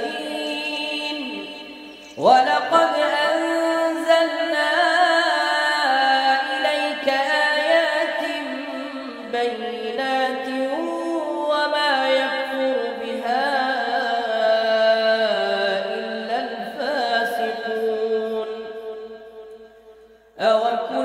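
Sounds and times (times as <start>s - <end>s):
person chanting melodically: 0.0s - 21.0s.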